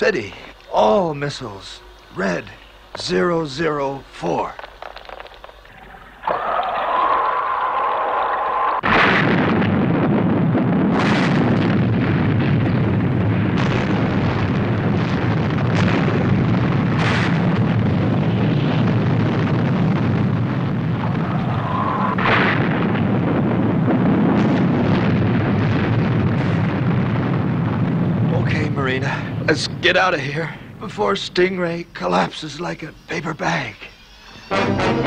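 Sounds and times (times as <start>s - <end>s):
rumble of explosions: 0.0s - 7.7s, 8.5s - 35.0s
explosion blasts: 6.2s - 31.3s
missile whine: 8.8s - 30.9s, 32.8s - 35.0s.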